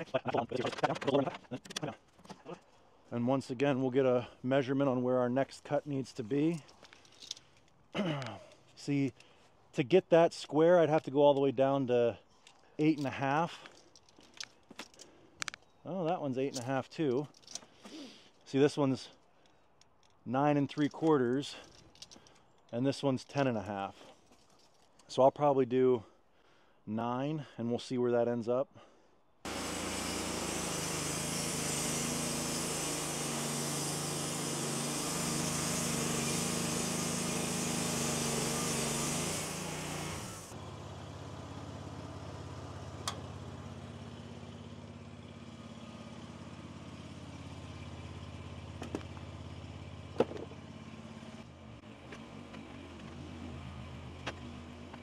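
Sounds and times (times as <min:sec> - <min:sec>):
band saw blade hissing in wood: 0:29.5 - 0:40.6
sawmill engine running: 0:29.5 - 0:55.0.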